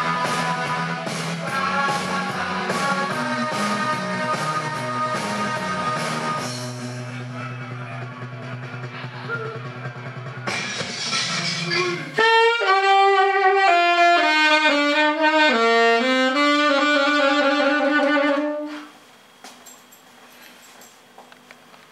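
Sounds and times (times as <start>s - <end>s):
accompanying music: 0.0s - 18.9s
alto saxophone playing: 12.0s - 19.0s.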